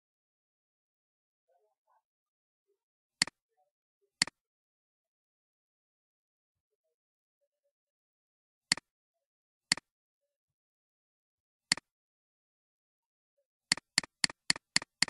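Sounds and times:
computer mouse clicking: 0:13.7 - 0:15.0.

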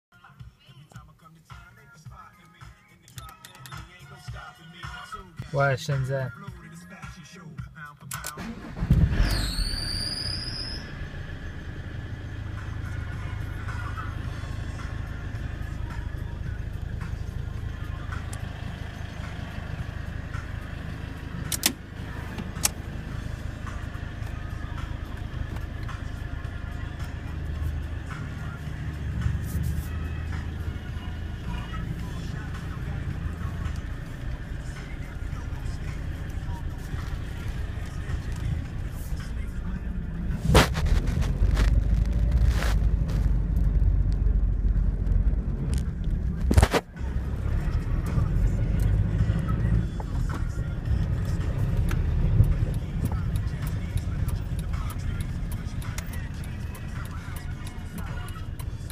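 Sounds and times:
van engine idling: 0:07.7 - 0:58.9
sharp clicks: 0:21.4 - 0:21.8, 0:51.0 - 0:58.9.

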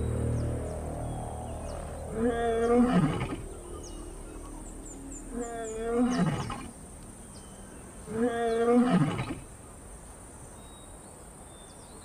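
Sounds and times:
lioness roaring: 0:01.6 - 0:04.7, 0:05.3 - 0:06.8, 0:08.0 - 0:09.5.

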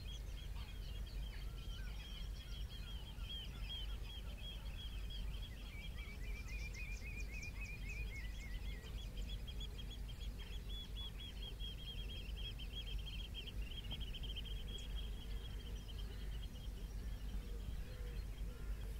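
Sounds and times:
songbird twittering: 0:00.0 - 0:18.9
steady low rumble: 0:00.0 - 0:18.9.

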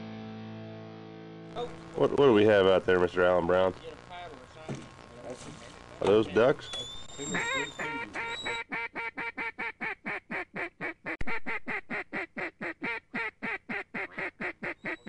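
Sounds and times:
duck quacking: 0:07.3 - 0:15.0.

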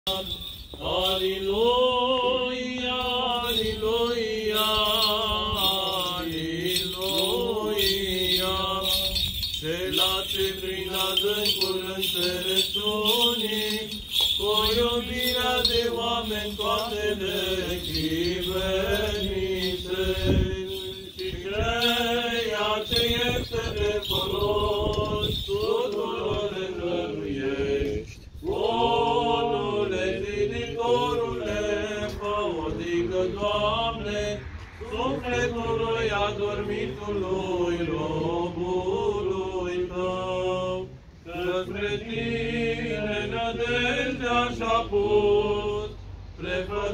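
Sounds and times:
men chanting: 0:00.1 - 0:46.9.

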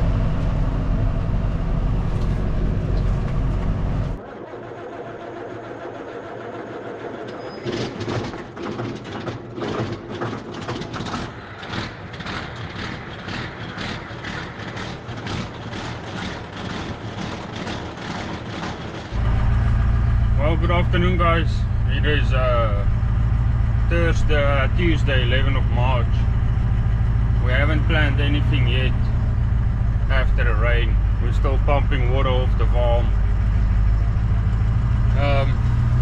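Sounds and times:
engine running with low rumble: 0:00.0 - 0:36.0
regular pulsing: 0:19.1 - 0:35.6.

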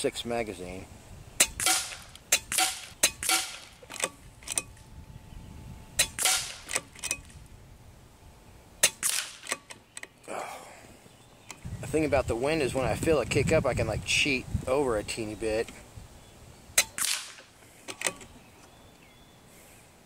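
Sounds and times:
air rifle shots with hiss: 0:01.4 - 0:04.1, 0:06.0 - 0:06.9, 0:08.8 - 0:09.6, 0:16.8 - 0:17.5.

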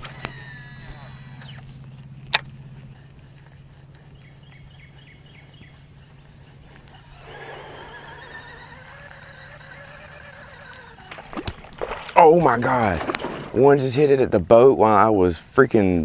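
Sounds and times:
fishing reel whirring: 0:00.0 - 0:03.4, 0:06.6 - 0:11.9
loud rough noise: 0:07.2 - 0:11.1.

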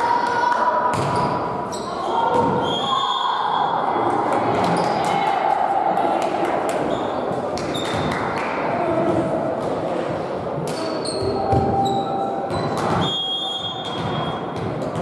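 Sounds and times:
murmur of voices in echoing hall: 0:00.0 - 0:15.0
shoes squeaking on court floor: 0:10.8 - 0:15.0.

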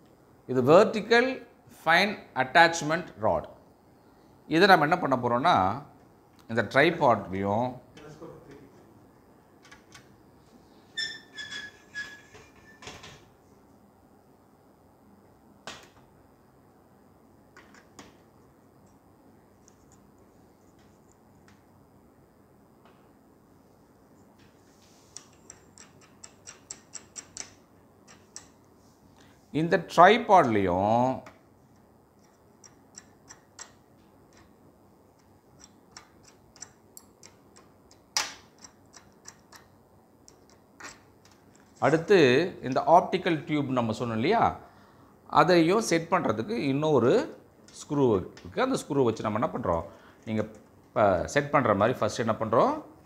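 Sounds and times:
faint clicks and ticks: 0:25.1 - 0:28.7, 0:31.2 - 0:41.8.

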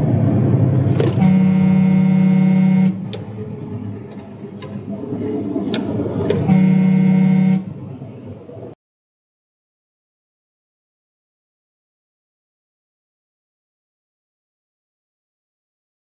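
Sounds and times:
engine and road noise: 0:00.0 - 0:08.8
truck horn blasts: 0:01.0 - 0:03.2, 0:06.3 - 0:07.8.

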